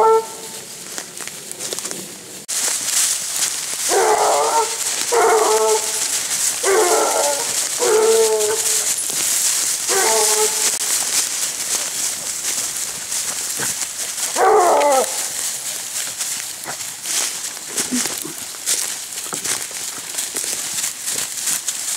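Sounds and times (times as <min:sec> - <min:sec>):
hounds baying: 0:00.0 - 0:00.6, 0:03.8 - 0:11.0, 0:12.6 - 0:18.4.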